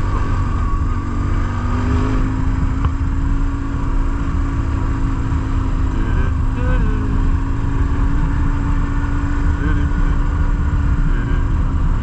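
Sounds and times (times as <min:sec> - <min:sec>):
motorcycle engine running: 0:00.0 - 0:12.0
wind rumble on microphone: 0:00.0 - 0:12.0.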